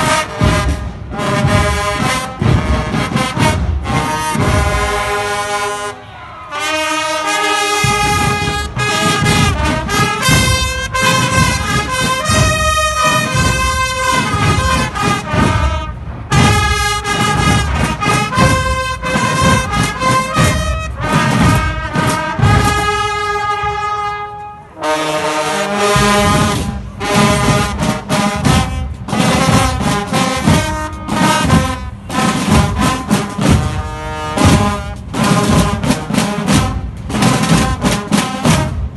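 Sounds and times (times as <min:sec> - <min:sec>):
pounding drums: 0:00.0 - 0:05.8, 0:06.6 - 0:38.9
brass band playing: 0:00.0 - 0:38.9.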